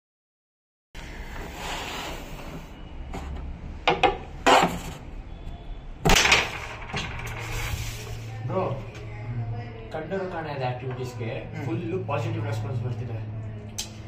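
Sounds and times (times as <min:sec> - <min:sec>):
carrom pieces clacking on board: 0:06.1 - 0:07.7.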